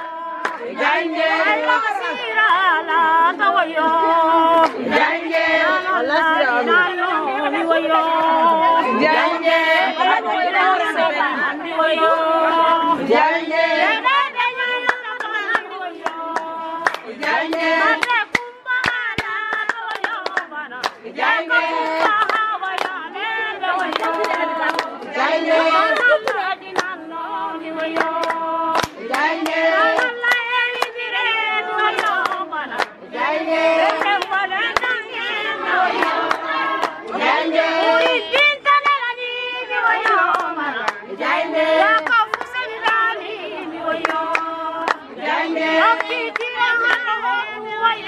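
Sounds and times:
high voices singing together: 0.0s - 48.0s
hand clapping: 0.4s - 0.7s, 14.8s - 21.0s, 21.7s - 23.0s, 23.7s - 25.0s, 25.8s - 27.0s, 27.7s - 31.1s, 31.8s - 33.0s, 33.7s - 35.0s, 39.9s - 41.0s, 41.8s - 43.1s, 44.0s - 45.1s.

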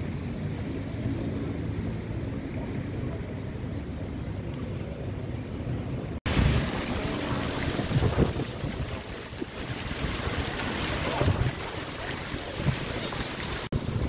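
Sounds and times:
low street rumble: 0.0s - 14.0s
wind buffeting microphone: 6.2s - 14.0s
fountain water splashing: 6.3s - 14.0s.

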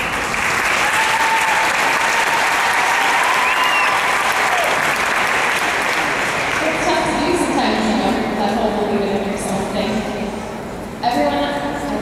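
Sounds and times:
audience applauding: 0.0s - 6.8s.

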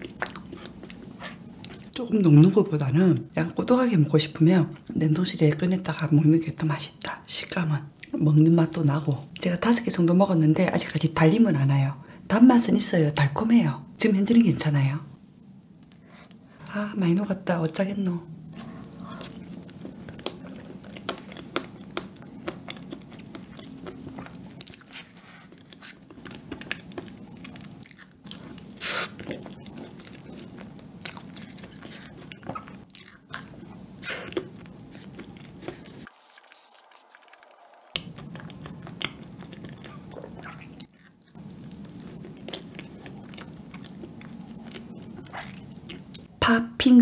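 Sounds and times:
lip smacks: 0.0s - 2.0s, 31.0s - 46.3s
wet chewing: 0.0s - 2.4s, 18.5s - 46.3s.

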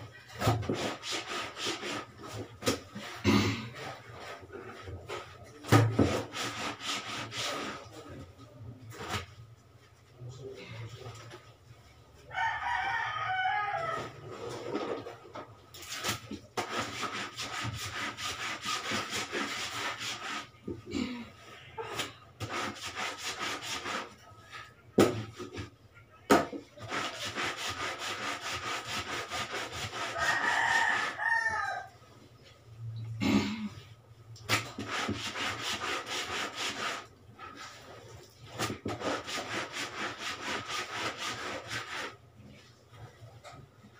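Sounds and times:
brush scrubbing laundry on board: 0.4s - 3.2s, 3.9s - 8.0s, 15.8s - 20.6s, 22.0s - 24.2s, 26.8s - 31.2s, 34.5s - 42.2s
rooster crowing: 12.3s - 14.3s, 30.1s - 32.0s.

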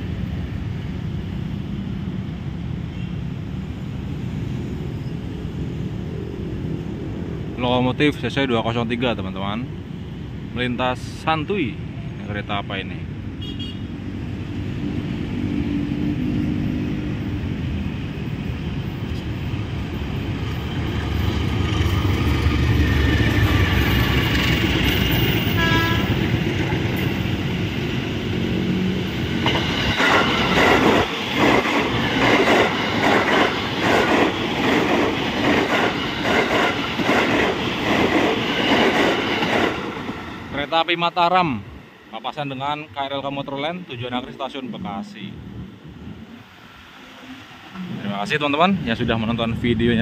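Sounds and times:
diesel locomotive rumbling: 0.0s - 50.0s
short train horn toot: 13.4s - 13.9s, 25.5s - 26.2s
train wheels clickety-clack: 29.2s - 40.2s.

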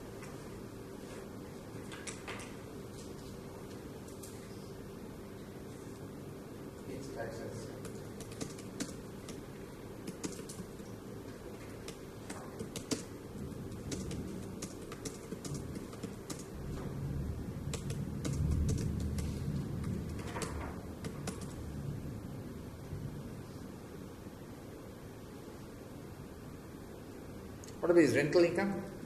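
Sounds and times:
typing on a keyboard: 1.8s - 2.6s, 7.8s - 11.0s, 11.6s - 16.5s, 17.7s - 21.6s.

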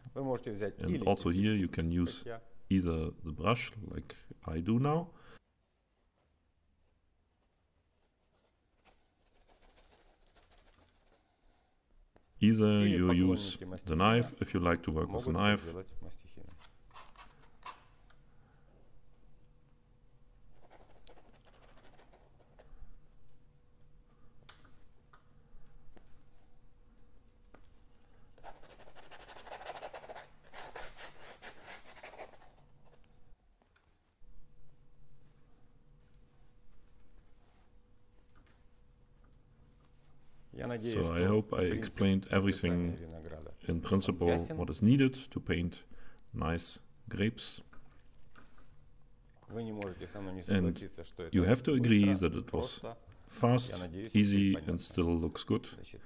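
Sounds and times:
paintbrush scratching on canvas: 5.4s - 12.4s, 20.5s - 22.7s, 28.4s - 33.0s.

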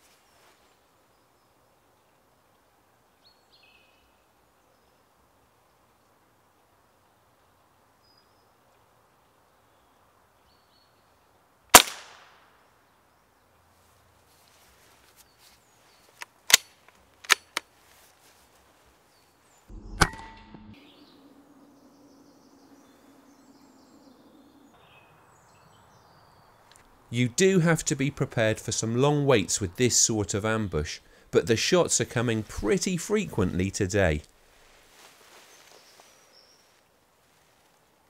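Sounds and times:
air rifle shot: 11.7s - 12.4s
rifle action clicking: 16.2s - 17.7s.

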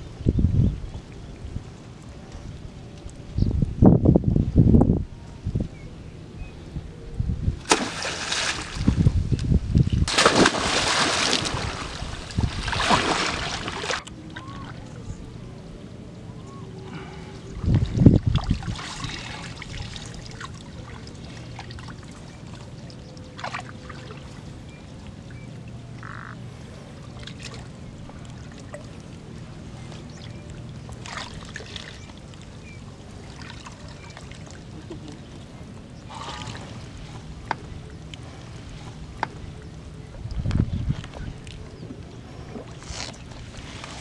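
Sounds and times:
steady low hum: 0.0s - 44.0s
water sloshing and splashing: 7.6s - 15.0s, 17.6s - 26.3s, 27.0s - 44.0s.

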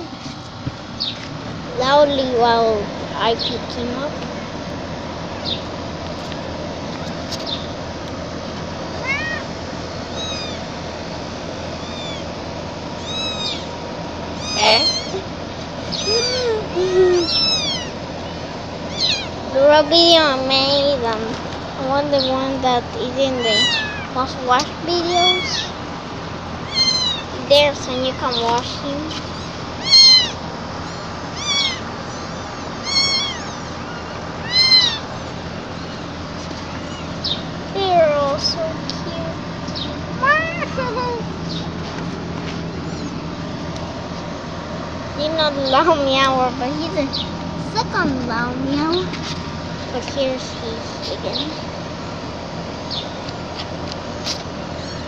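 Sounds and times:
kitten meowing loudly: 9.0s - 9.5s, 10.1s - 10.6s, 11.8s - 12.3s, 13.0s - 13.7s, 14.4s - 15.2s, 16.0s - 18.0s, 18.9s - 19.4s, 23.4s - 24.1s, 25.4s - 25.7s, 26.6s - 27.3s, 29.3s - 35.1s.

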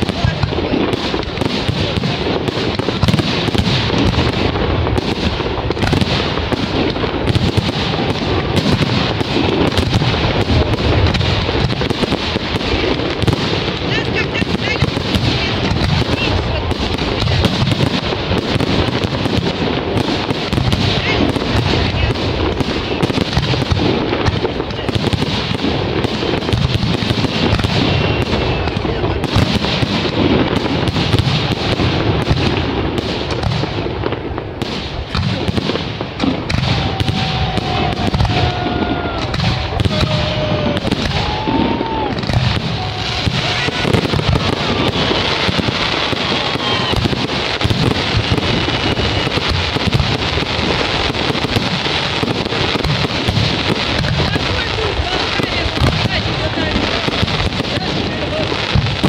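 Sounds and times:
firework shell bursts and crackling: 0.0s - 59.0s
firework whistles: 36.3s - 53.3s.

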